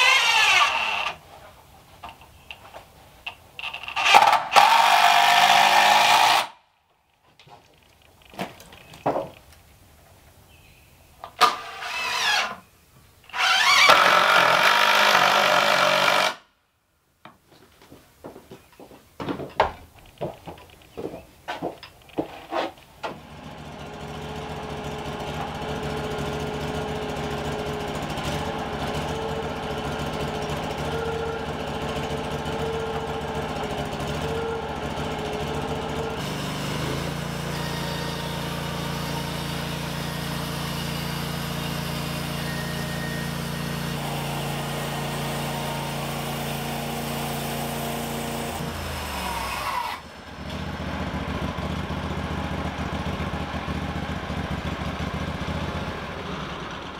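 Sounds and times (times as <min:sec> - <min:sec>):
small gasoline engine running: 0:23.2 - 0:56.9.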